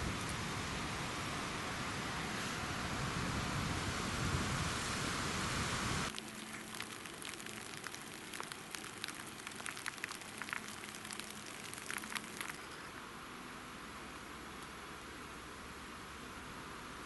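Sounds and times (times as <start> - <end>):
steady hiss: 0.0 - 17.0
raindrops ticking on wet leaves: 6.1 - 13.0.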